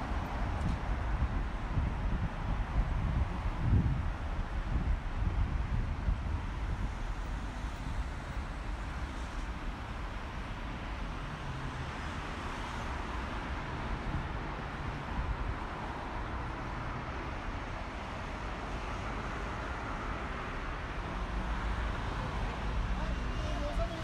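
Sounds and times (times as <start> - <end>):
cars passing on street: 0.0 - 24.0.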